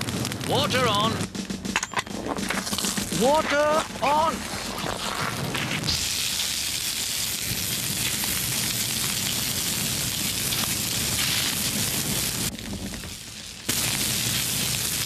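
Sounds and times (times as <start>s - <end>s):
water sizzling on flames: 0.0s - 15.0s
water hissing from hose nozzle: 3.2s - 12.5s, 13.7s - 15.0s.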